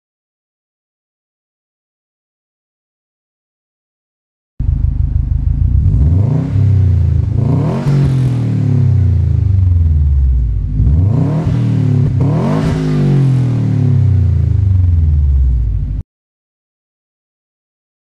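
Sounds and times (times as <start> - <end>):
car engine revving: 4.6 - 16.0.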